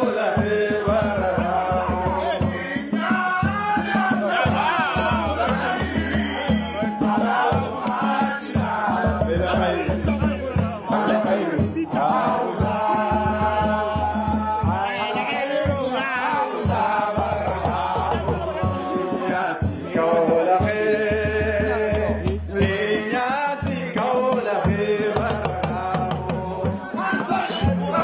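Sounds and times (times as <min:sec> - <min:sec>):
person chanting: 0:08.6 - 0:23.0.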